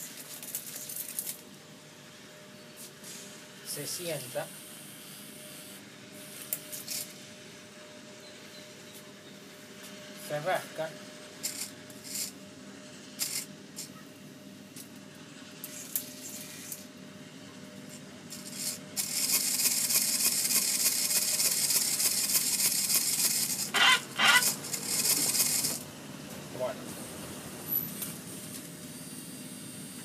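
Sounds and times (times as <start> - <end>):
loud steady hiss: 18.3 - 23.8, 24.4 - 30.0.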